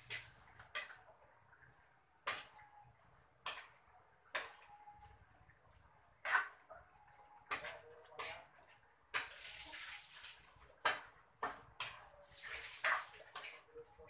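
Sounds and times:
food sizzling in a wok: 0:00.0 - 0:01.0, 0:07.5 - 0:13.7
utensil scraping a pan: 0:06.2 - 0:06.6, 0:07.4 - 0:13.7.

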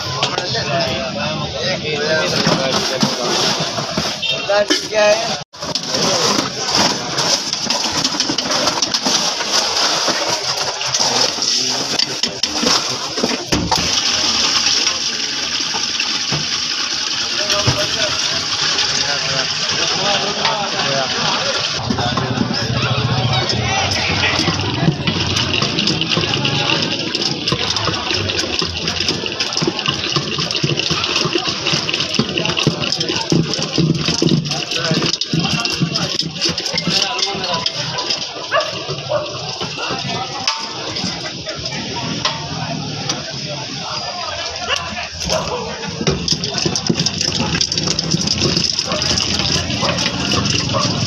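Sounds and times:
liquid sloshing in mixer: 0:05.6 - 0:21.6, 0:23.9 - 0:41.3, 0:45.2 - 0:51.0
wooden stick knocking metal pot: 0:23.9 - 0:40.7, 0:45.2 - 0:51.0.

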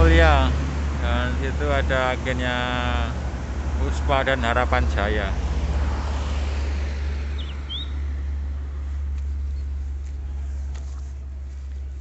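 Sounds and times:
steady low rumble: 0:00.0 - 0:05.5, 0:06.6 - 0:12.0
passing vehicle: 0:00.0 - 0:12.0
bird chirp: 0:07.3 - 0:08.2.

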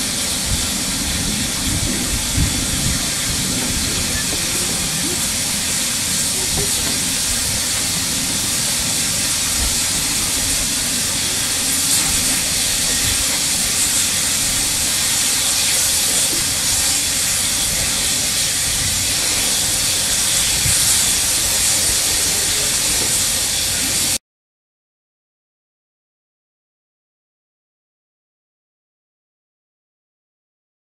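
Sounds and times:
steam locomotive venting steam: 0:00.0 - 0:24.2.

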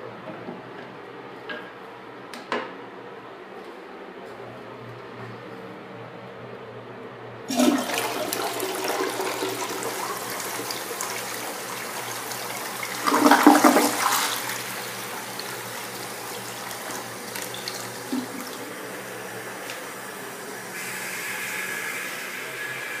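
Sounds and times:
toilet flushing: 0:07.5 - 0:23.0
high hiss: 0:19.6 - 0:23.0.

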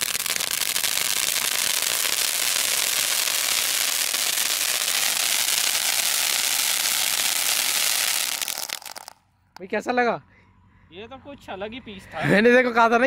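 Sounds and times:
firework fountain hissing and crackling: 0:00.0 - 0:09.2.

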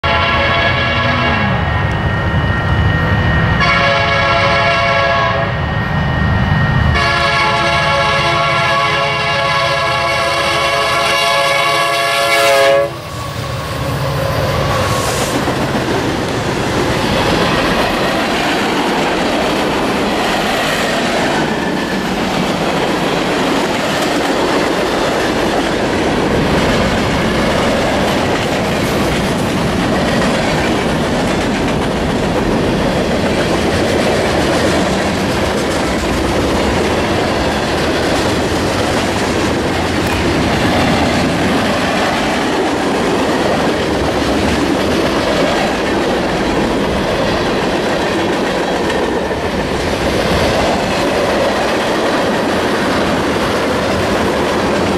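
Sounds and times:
freight train horn chord: 0:00.0 - 0:01.6, 0:03.6 - 0:05.6, 0:06.9 - 0:13.1
train wheels on rails: 0:00.0 - 0:54.9
clickety-clack over rail joints: 0:15.2 - 0:54.9.

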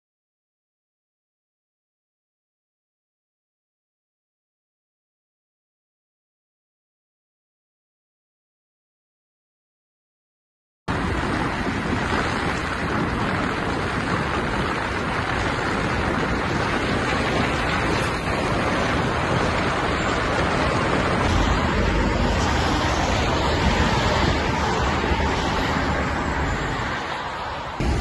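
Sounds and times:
deep rumble: 0:10.9 - 0:28.0
tyre and road noise: 0:10.9 - 0:28.0
wind on microphone: 0:10.9 - 0:28.0.

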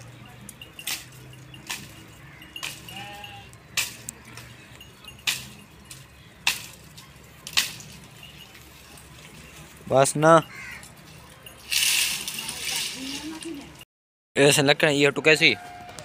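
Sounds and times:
goat bleat: 0:02.8 - 0:03.6
dry branches cracking: 0:05.2 - 0:09.4.

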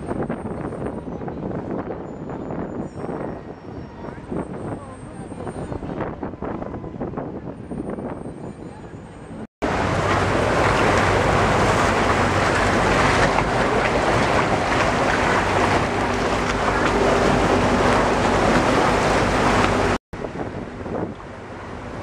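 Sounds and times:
wind buffeting the microphone: 0:00.0 - 0:22.0
boat engine hum: 0:09.0 - 0:22.0
water rushing along a boat hull: 0:09.6 - 0:22.0.

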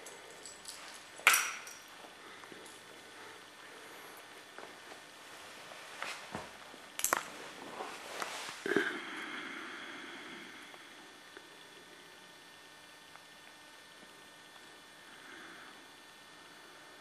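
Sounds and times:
metal toy clinking on tile: 0:00.0 - 0:01.9.

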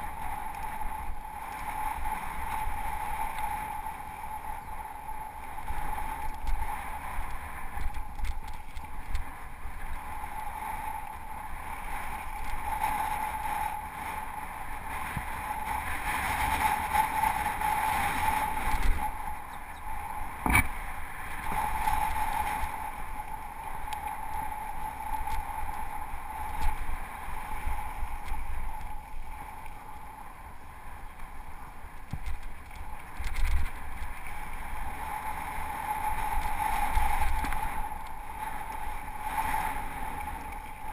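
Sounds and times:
wind on microphone: 0:00.0 - 0:40.9
bike rattling over bumps: 0:17.9 - 0:22.6.

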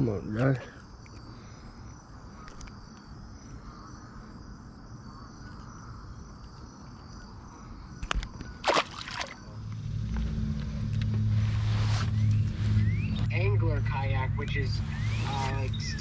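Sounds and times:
insects chirping: 0:00.0 - 0:16.0
steady low hum: 0:08.5 - 0:16.0
fish splashing into water: 0:08.6 - 0:09.6.

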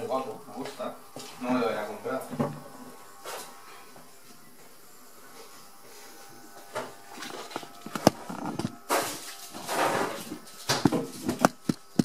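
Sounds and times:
camera handling rustling: 0:07.1 - 0:09.7.

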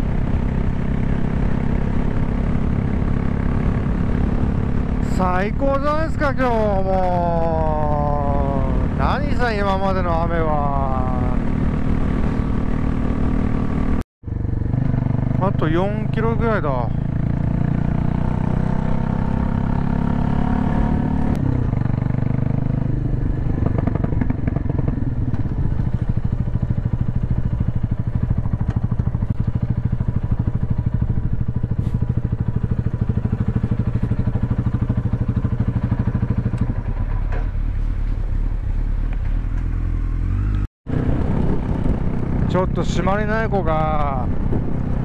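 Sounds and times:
motorcycle engine running: 0:00.0 - 0:45.0.

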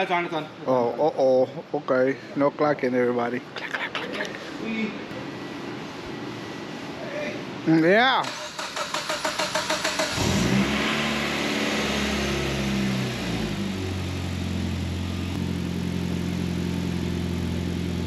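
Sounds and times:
car engine revving and idling: 0:08.3 - 0:18.0.

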